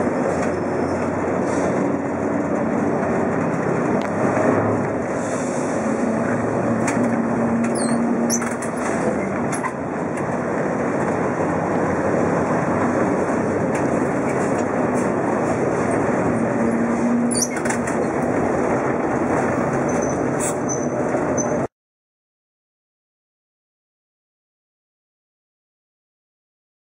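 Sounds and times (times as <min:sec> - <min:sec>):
tram wheels rumbling on rails: 0:00.0 - 0:21.7
brief high squeaks: 0:07.6 - 0:09.7, 0:17.2 - 0:17.8, 0:19.9 - 0:21.7.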